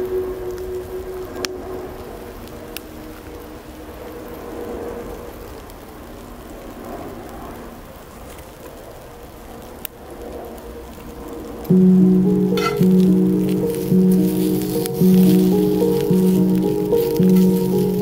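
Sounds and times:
wood fire crackling: 0.0s - 18.0s
peppers sizzling in a skillet: 11.8s - 18.0s.

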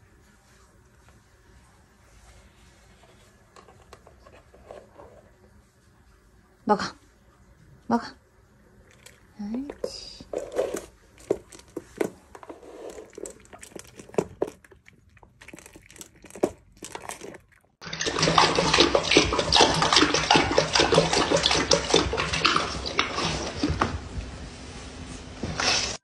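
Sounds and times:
puppy crunching kibble: 8.8s - 24.0s
dog lapping water from metal bowl: 12.8s - 24.0s.

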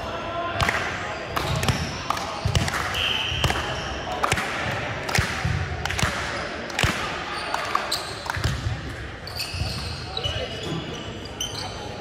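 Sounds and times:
volleyballs thumping on gym floor: 0.6s - 7.6s, 8.2s - 9.0s.

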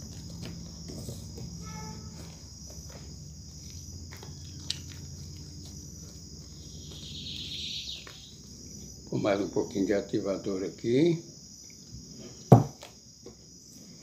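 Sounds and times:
high-pitched insect-like drone: 0.0s - 9.2s.

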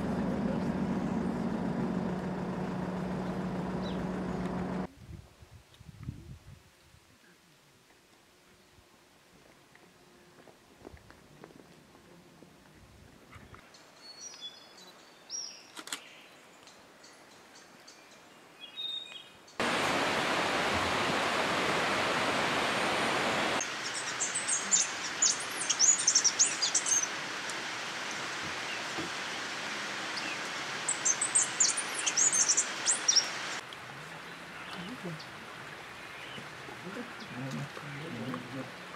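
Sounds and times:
steady background hiss: 19.4s - 38.9s.

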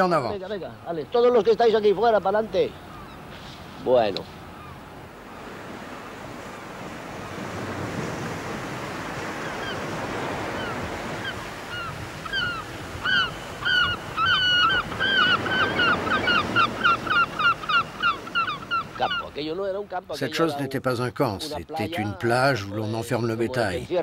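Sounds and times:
bird calling: 0.0s - 6.3s, 8.9s - 19.6s
surf washing on a beach: 0.0s - 24.0s.

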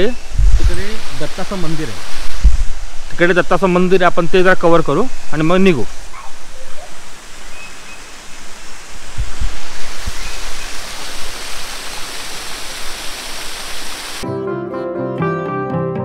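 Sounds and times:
waterfall rushing over rocks: 0.6s - 3.5s, 5.8s - 14.2s.

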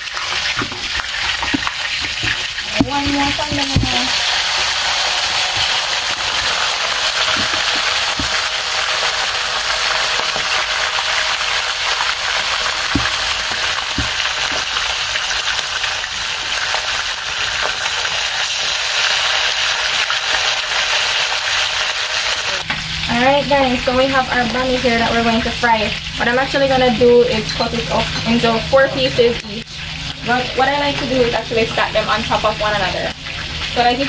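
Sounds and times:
fish sizzling in hot oil: 0.0s - 34.0s.

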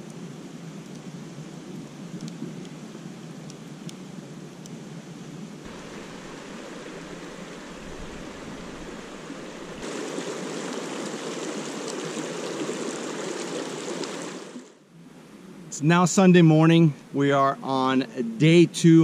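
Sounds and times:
creek rushing over rocks: 5.7s - 14.8s.

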